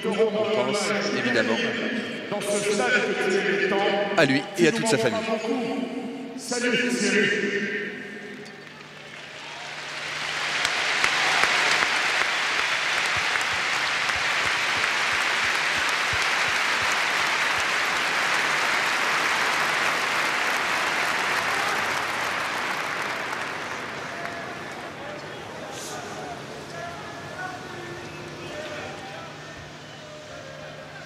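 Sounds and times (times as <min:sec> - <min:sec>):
stadium crowd applauding: 0:08.4 - 0:31.0.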